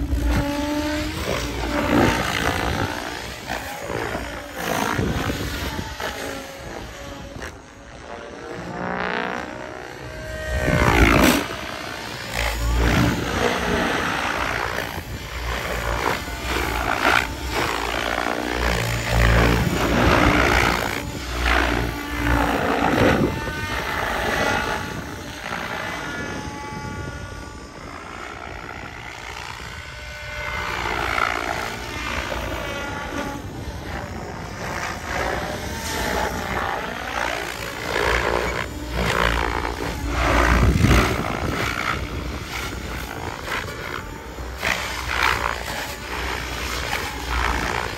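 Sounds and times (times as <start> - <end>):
electric motor whining: 0.0 - 47.9
rotor blades whooshing: 9.3 - 27.4.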